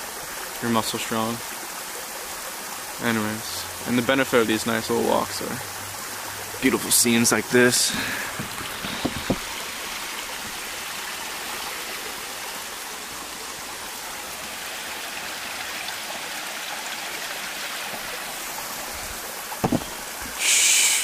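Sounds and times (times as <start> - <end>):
waterfall splashing: 0.0 - 21.0
camera handling knocks: 8.4 - 9.5, 19.6 - 20.0.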